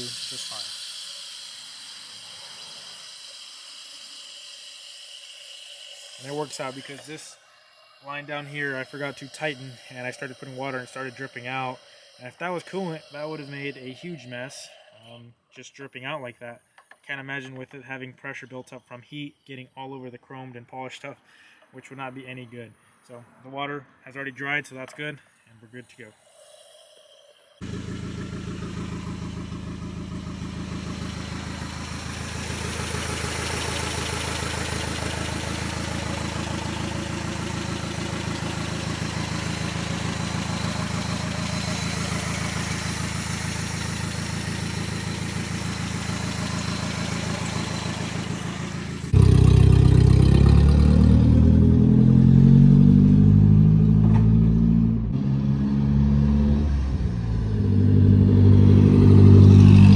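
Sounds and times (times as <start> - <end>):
truck engine idling: 6.2 - 14.9, 27.6 - 50.8
truck engine revving through gears: 27.6 - 59.9.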